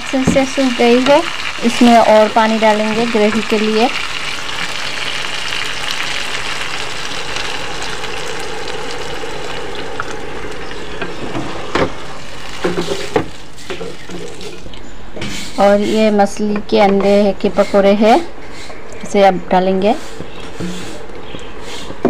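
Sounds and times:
vegetables sizzling in a pan: 0:00.0 - 0:14.7
water pouring into pan: 0:00.0 - 0:14.7.

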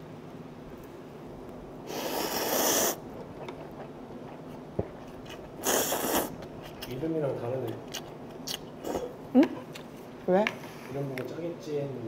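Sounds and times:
person slurping noodles: 0:01.9 - 0:03.9, 0:05.3 - 0:06.4.

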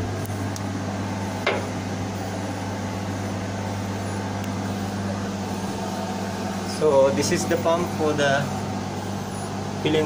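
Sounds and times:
engine room machinery hum: 0:00.0 - 0:10.0.

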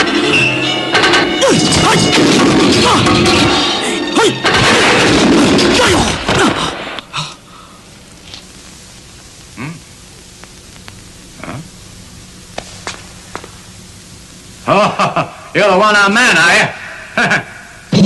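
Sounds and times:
film soundtrack music: 0:00.0 - 0:06.2
booming crashes: 0:01.0 - 0:03.8, 0:04.4 - 0:07.0
low hiss: 0:06.6 - 0:17.9.

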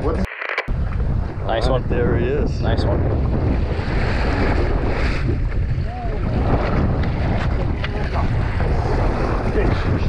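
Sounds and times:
wind buffeting microphone: 0:00.0 - 0:10.0
faint voices: 0:07.5 - 0:10.0.

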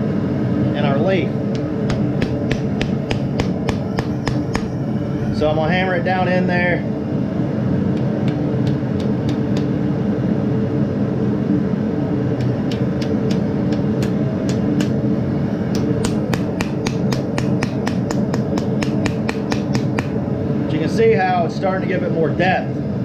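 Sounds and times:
steady low hum: 0:00.0 - 0:23.0
hammer tapping hot steel: 0:01.5 - 0:04.8, 0:08.0 - 0:09.7, 0:12.4 - 0:15.0, 0:15.7 - 0:20.2.

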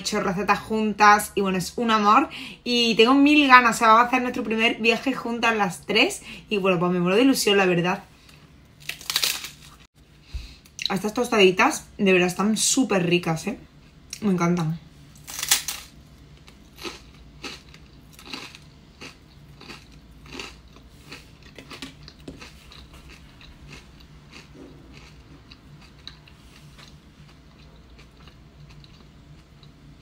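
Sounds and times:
crunchy toast chewing: 0:08.8 - 0:09.8, 0:15.2 - 0:29.8.

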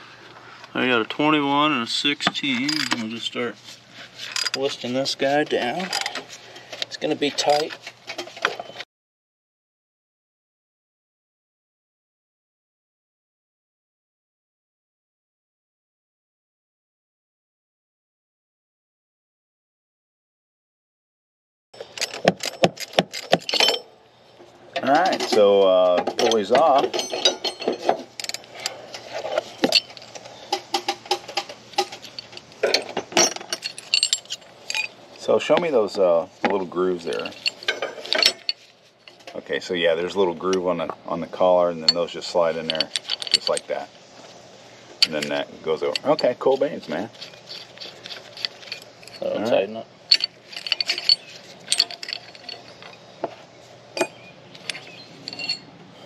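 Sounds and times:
hand tools clicking and clinking: 0:02.6 - 0:03.1, 0:04.2 - 0:04.8, 0:05.6 - 0:08.7, 0:21.8 - 0:23.9, 0:24.9 - 0:35.0, 0:36.9 - 0:39.4, 0:41.8 - 0:43.9, 0:45.0 - 0:55.7.

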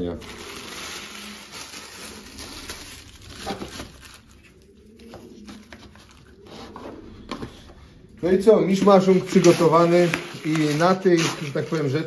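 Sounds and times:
plastic bag crinkling: 0:00.0 - 0:06.3, 0:09.0 - 0:12.0.

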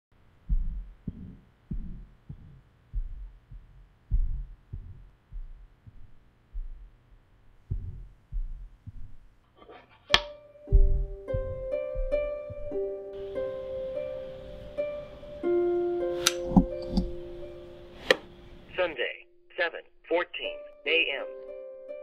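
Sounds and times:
heartbeat thumps: 0:00.2 - 0:09.4, 0:10.7 - 0:13.6.

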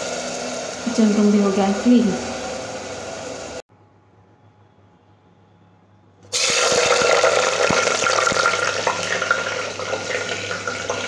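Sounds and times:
onions sizzling in hot oil: 0:00.0 - 0:03.6, 0:06.3 - 0:11.0.

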